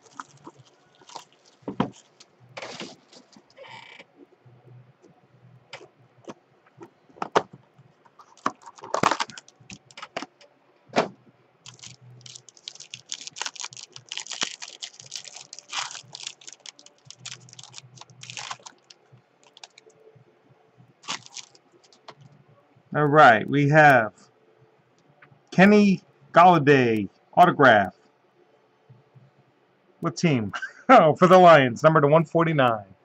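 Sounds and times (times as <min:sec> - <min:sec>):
foil wrapper crinkling: 0:00.0 - 0:03.6, 0:08.2 - 0:10.2, 0:11.7 - 0:19.8, 0:21.0 - 0:22.1.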